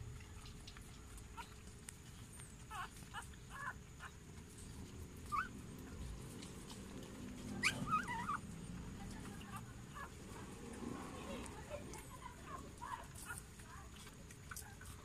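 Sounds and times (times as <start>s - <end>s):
puppy squeaking and whimpering: 1.3s - 4.2s, 5.2s - 5.6s, 7.6s - 8.4s.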